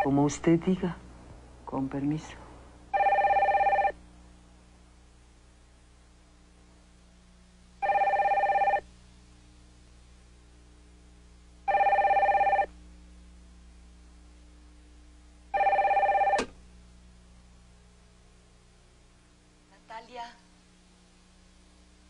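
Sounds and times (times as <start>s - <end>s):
desk telephone ringing: 2.9s - 4.0s, 7.8s - 8.8s, 11.7s - 12.7s, 15.5s - 16.5s.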